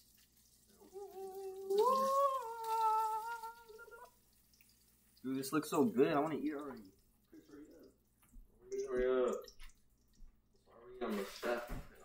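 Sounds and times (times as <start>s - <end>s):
person humming: 0.8s - 4.1s.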